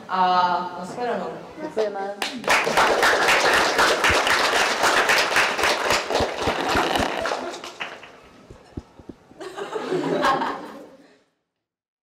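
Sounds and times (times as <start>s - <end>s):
small group applauding: 2.2s - 9.2s.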